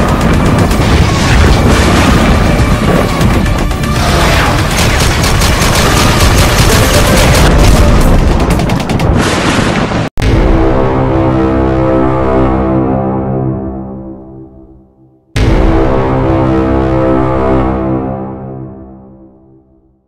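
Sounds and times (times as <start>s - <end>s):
music: 0.0s - 9.2s, 10.2s - 20.0s
rapid automatic gunfire: 0.0s - 9.5s
heavy booms: 0.0s - 11.6s.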